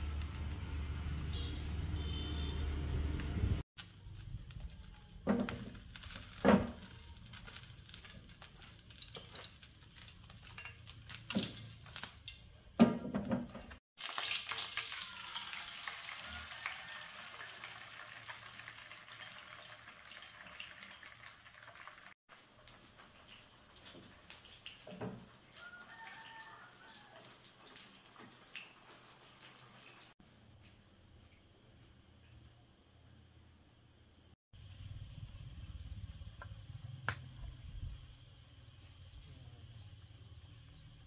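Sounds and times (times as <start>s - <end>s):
food sizzling in a pan: 3.8s - 12.6s, 14.0s - 30.2s.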